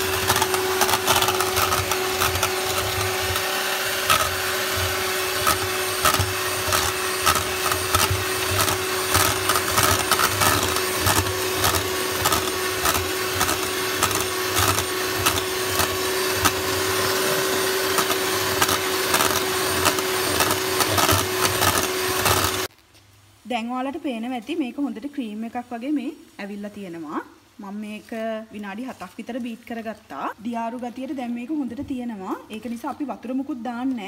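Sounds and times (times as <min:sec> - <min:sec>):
electric hand mixer whine: 0:00.0 - 0:22.7.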